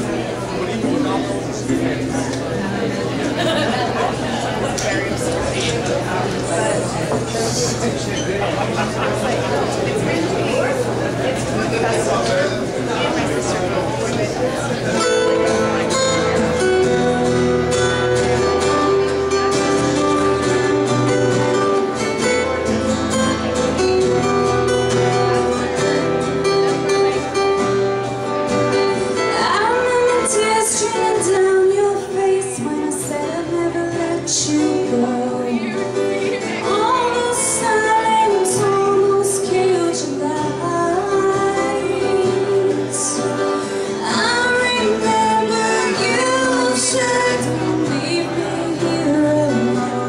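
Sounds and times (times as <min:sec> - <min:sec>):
acoustic guitars playing: 0:00.0 - 0:50.0
woman singing: 0:29.2 - 0:50.0.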